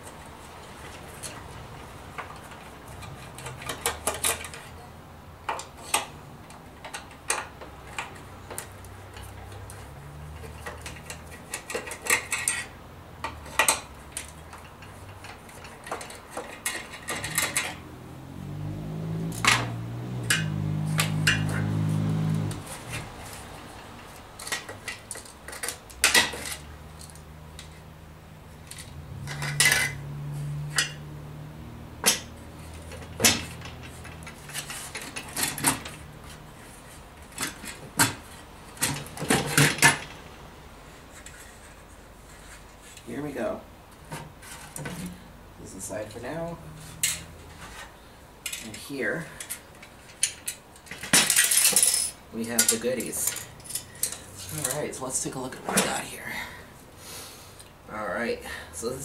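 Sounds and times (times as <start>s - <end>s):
screws clinking against metal: 48.5s - 56.0s.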